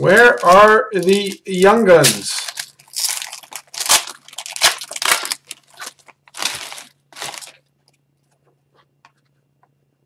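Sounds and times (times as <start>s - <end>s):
wrapper crinkling as torn open: 0.0s - 7.7s.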